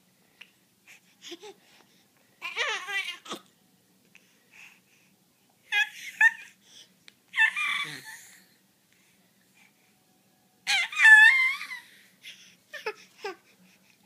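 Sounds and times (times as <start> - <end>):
baby squealing and babbling: 2.4 - 3.4, 7.4 - 8.3, 10.7 - 11.9.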